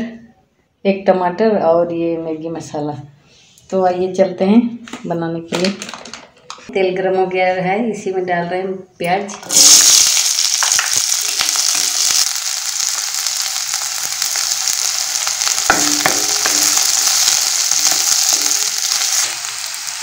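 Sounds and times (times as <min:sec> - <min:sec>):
onions sizzling in hot oil: 0:09.4 - 0:20.0.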